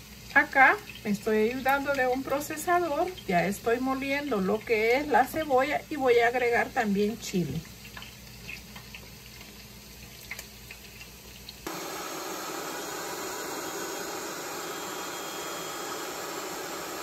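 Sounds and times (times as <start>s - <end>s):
food processor whirring: 11.7s - 17.0s.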